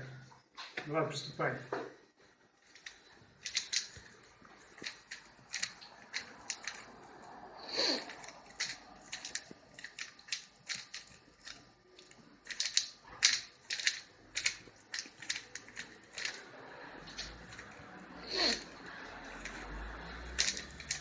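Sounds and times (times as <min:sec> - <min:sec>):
puzzle cube clicking: 0:02.7 - 0:07.0, 0:07.7 - 0:21.0.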